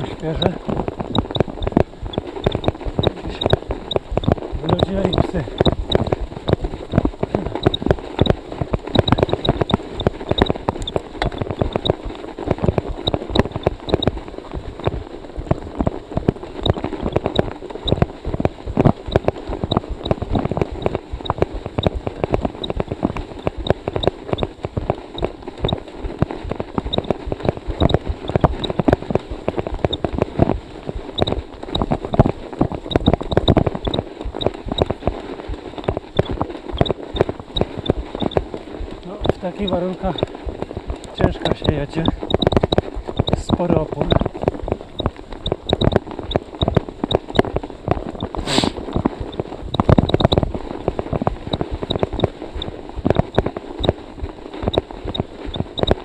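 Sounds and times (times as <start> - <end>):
bike tyres crunching through snow: 0.0 - 49.7.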